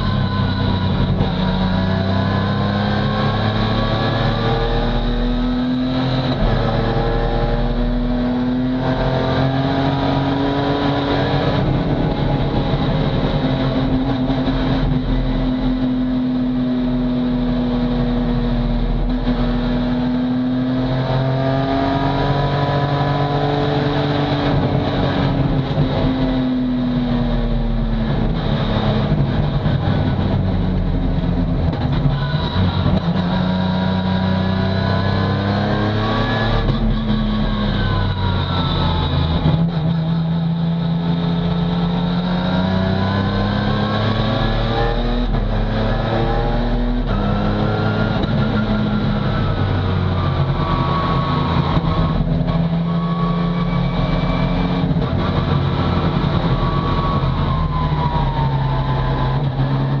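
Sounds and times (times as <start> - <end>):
race car engine revving: 0.0 - 60.0.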